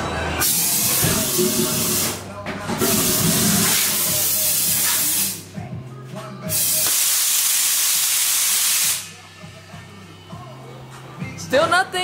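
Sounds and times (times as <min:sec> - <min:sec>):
aerosol spray can hissing: 0:06.5 - 0:09.1.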